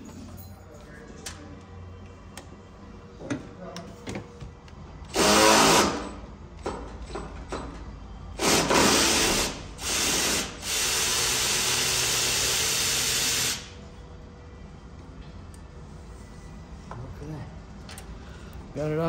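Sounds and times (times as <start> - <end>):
power ratchet running: 5.1 - 6.2, 8.4 - 13.8.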